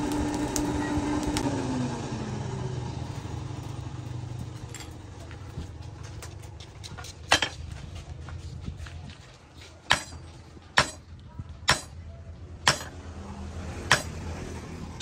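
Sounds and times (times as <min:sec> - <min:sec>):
hammer striking metal: 0:07.3 - 0:07.6, 0:09.9 - 0:11.1, 0:11.7 - 0:12.0, 0:12.6 - 0:13.0, 0:13.9 - 0:14.2.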